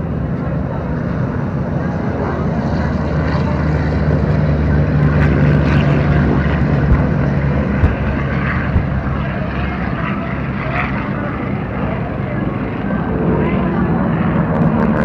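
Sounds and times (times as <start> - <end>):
propeller plane engine droning: 0.0 - 15.0
short thumps: 6.9 - 7.2, 7.8 - 8.0.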